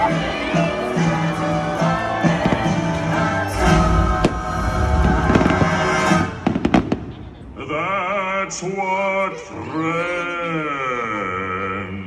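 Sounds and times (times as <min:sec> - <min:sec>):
loud orchestral music: 0:00.0 - 0:06.9
firework bangs: 0:02.4 - 0:07.6.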